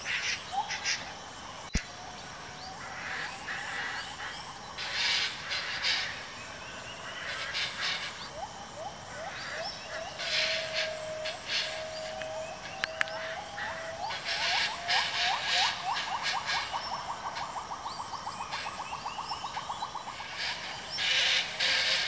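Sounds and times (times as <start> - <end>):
animal whistling and chirping: 10.2 - 19.6.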